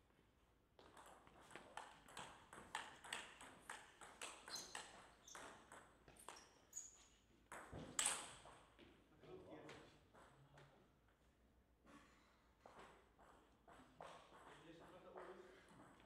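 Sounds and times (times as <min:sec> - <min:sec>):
table tennis ball knocking: 0:00.8 - 0:06.4.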